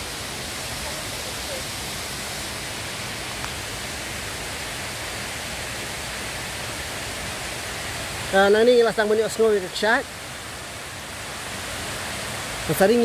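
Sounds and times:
waterfall rushing: 0:00.0 - 0:13.0
light tick: 0:03.4 - 0:03.6.

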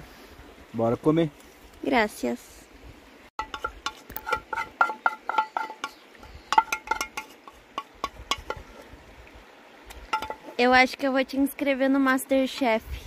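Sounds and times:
cutlery clinking on a plate: 0:03.4 - 0:08.6.

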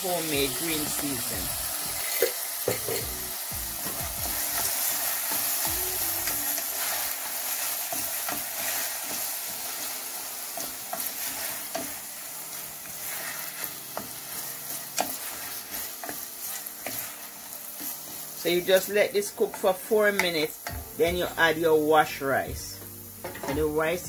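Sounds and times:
vegetables sizzling in oil: 0:00.0 - 0:24.0
wooden spoon scraping a pan: 0:06.2 - 0:20.3.

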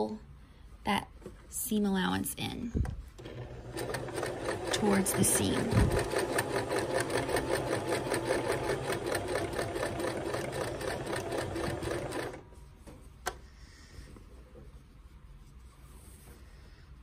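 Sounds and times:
sewing machine stitching: 0:03.2 - 0:12.4.

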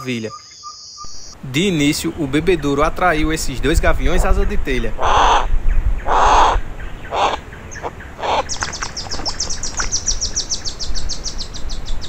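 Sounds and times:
high ticking bird notes: 0:00.0 - 0:02.4, 0:05.0 - 0:12.0
hawk rasping screams: 0:05.0 - 0:05.5, 0:06.1 - 0:07.4.

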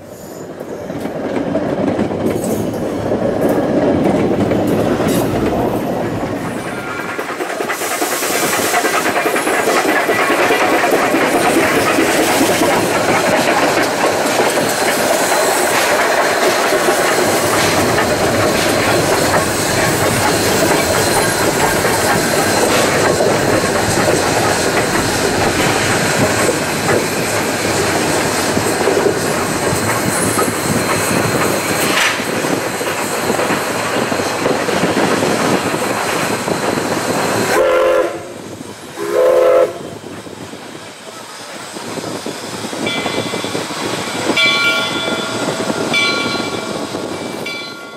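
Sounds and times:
steam train running: 0:00.0 - 0:47.9
steam whistle blasts: 0:37.5 - 0:38.4, 0:39.0 - 0:39.9.

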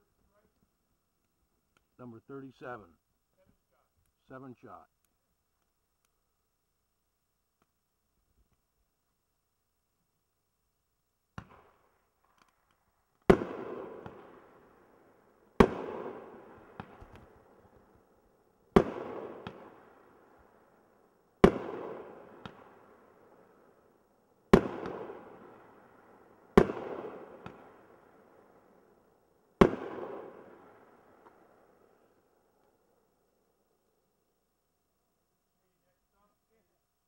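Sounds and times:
small firework cracks: 0:11.3 - 0:18.1, 0:18.7 - 0:20.5, 0:21.4 - 0:23.9, 0:24.5 - 0:28.8, 0:29.6 - 0:32.8
firework bangs with rumbling echo: 0:18.8 - 0:19.9.

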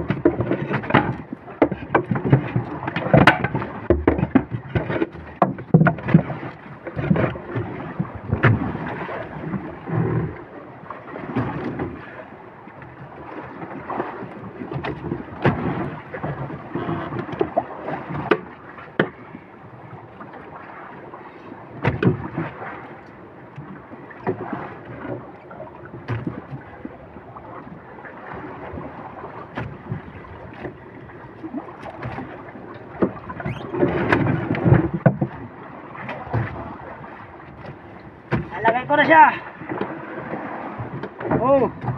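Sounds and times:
boat gear knocking: 0:00.0 - 0:07.4, 0:26.0 - 0:26.6, 0:31.5 - 0:35.4, 0:37.5 - 0:40.0
water lapping against boat hull: 0:00.0 - 0:41.9.

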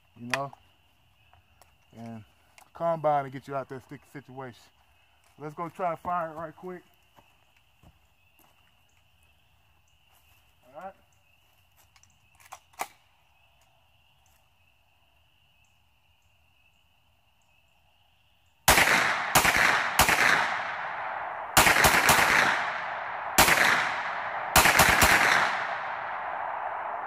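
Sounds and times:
gunshots with long echo: 0:18.7 - 0:27.0.

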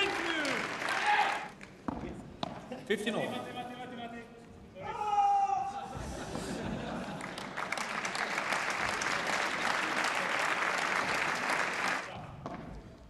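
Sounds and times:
audience applauding: 0:00.0 - 0:01.7, 0:07.0 - 0:12.1.

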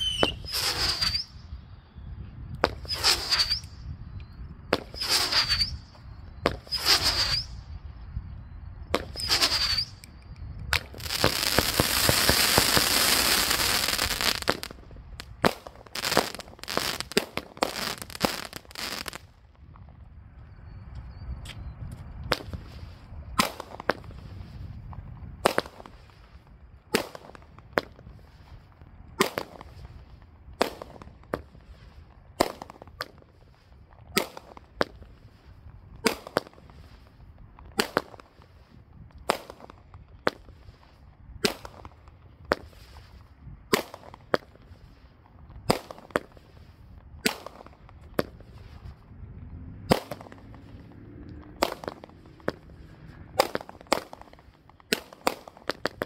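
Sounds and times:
firework cake shots: 0:47.2 - 0:48.6, 0:51.6 - 0:52.7, 0:53.4 - 0:56.0.

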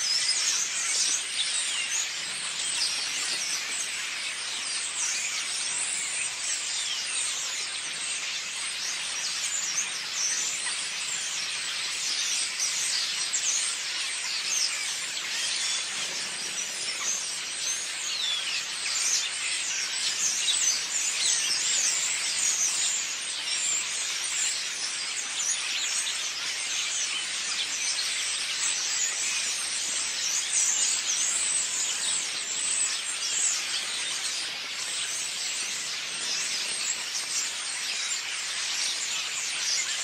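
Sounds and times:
flock of birds chattering: 0:00.0 - 0:40.0.

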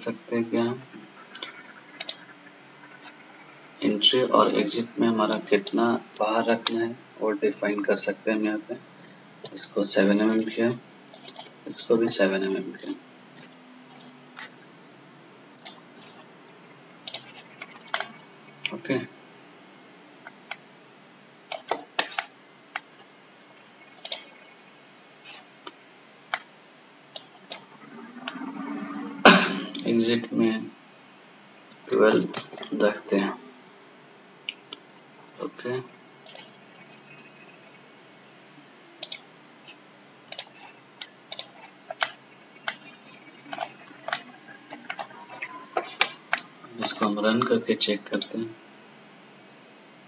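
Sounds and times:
faint steady hiss: 0:00.0 - 0:50.0
computer mouse clicking: 0:01.4 - 0:02.3, 0:17.1 - 0:18.2, 0:24.0 - 0:24.4, 0:39.0 - 0:39.3, 0:41.3 - 0:45.2.

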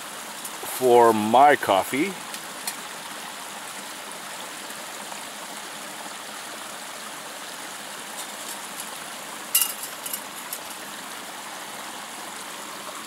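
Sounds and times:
stream rushing: 0:00.0 - 0:13.0
metal cooking pot clinking: 0:09.6 - 0:10.8.

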